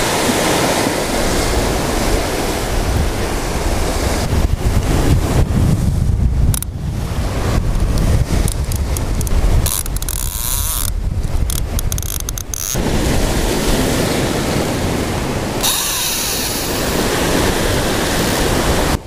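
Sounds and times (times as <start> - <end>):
wind buffeting microphone: 0.0 - 19.0
surf breaking over rocks: 12.8 - 19.0.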